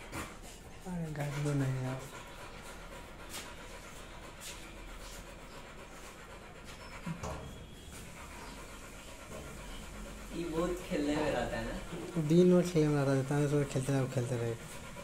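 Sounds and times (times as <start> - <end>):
dog panting: 0.0 - 15.0
thump: 7.1 - 7.6.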